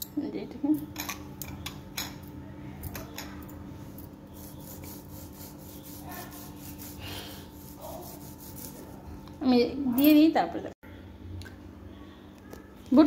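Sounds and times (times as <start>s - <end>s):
lime rasping on corn cob: 4.3s - 9.0s.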